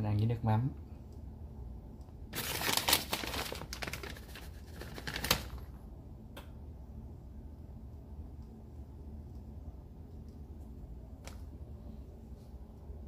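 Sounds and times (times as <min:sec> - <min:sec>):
shredded cheese rustling: 0:02.4 - 0:05.6.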